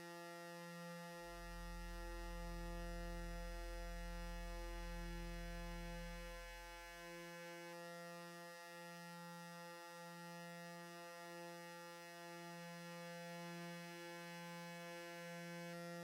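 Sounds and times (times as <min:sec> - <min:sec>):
low synthesizer drone: 0:01.2 - 0:07.1.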